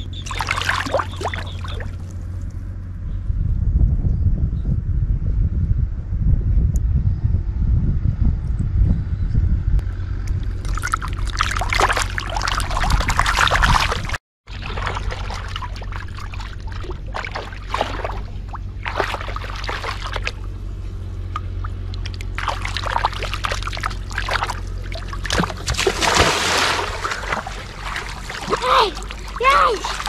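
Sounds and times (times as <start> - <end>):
steady low rumble: 0.0 - 30.0
fish thrashing and splashing: 0.2 - 2.2, 10.4 - 20.5, 21.6 - 30.0.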